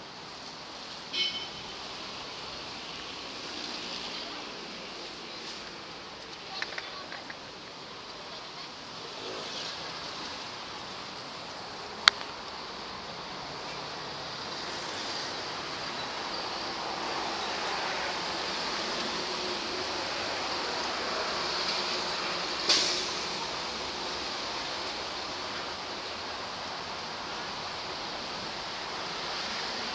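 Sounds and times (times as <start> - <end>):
sharp click: 12.0 - 12.3.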